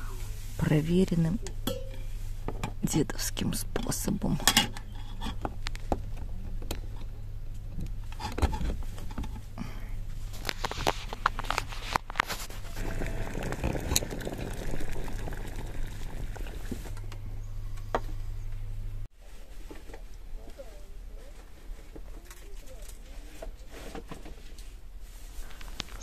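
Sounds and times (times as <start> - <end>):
low hum: 0.0 - 19.6
water ticking and crackling: 12.8 - 17.0.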